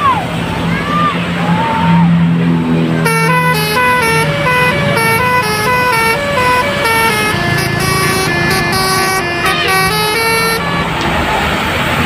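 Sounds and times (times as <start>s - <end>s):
bus musical horn tune: 3.0s - 11.2s.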